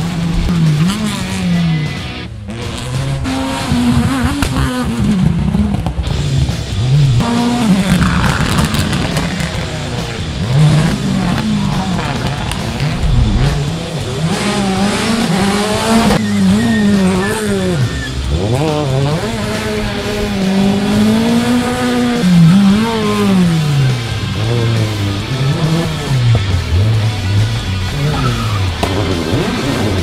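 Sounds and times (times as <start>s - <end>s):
rally car engine revving: 0.0s - 30.0s
tyre squeal: 16.2s - 18.4s, 27.7s - 29.4s.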